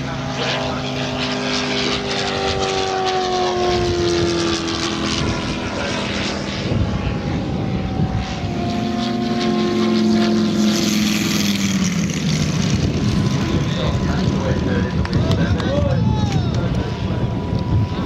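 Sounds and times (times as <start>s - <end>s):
model plane engine drone: 0.0s - 18.0s.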